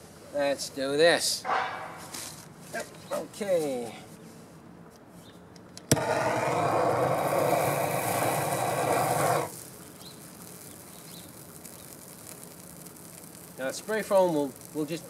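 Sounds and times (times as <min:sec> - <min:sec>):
gas torch flame hissing: 0:05.9 - 0:15.0.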